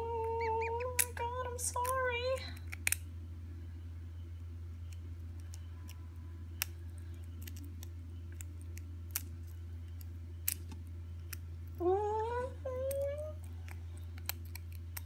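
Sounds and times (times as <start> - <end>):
steady low hum: 0.0 - 15.0
tweezers clicking on eggshell: 12.9 - 15.0.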